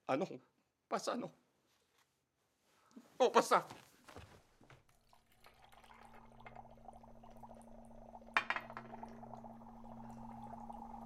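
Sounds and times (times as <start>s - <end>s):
bubbling and fizzing: 4.8s - 11.0s
liquid pouring into a mug: 4.8s - 11.0s.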